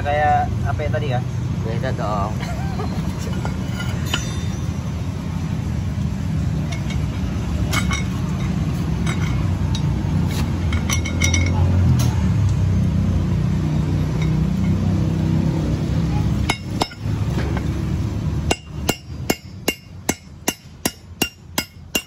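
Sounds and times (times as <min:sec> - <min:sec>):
steel tool clinking on metal: 0:03.2 - 0:04.9, 0:06.6 - 0:10.0, 0:10.7 - 0:11.7, 0:16.4 - 0:17.7, 0:18.5 - 0:22.0.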